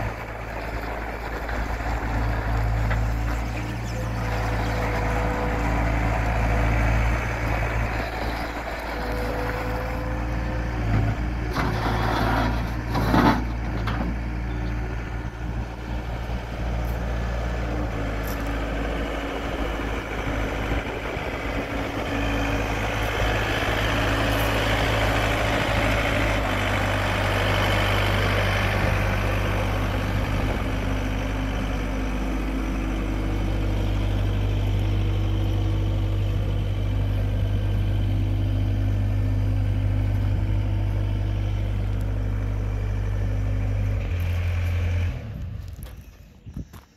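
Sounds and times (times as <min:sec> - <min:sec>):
diesel engine idling: 0:00.0 - 0:46.9.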